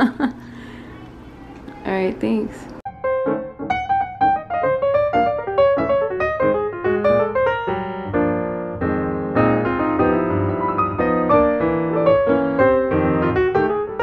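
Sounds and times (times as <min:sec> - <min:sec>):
piano music: 0:02.8 - 0:14.0.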